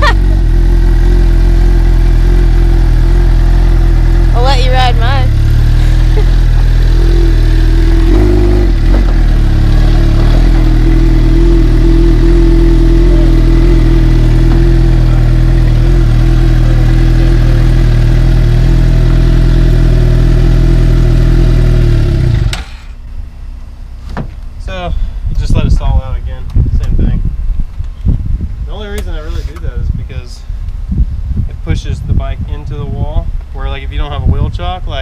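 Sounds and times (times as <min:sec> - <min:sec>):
motorcycle engine idling: 0:00.0 - 0:25.4.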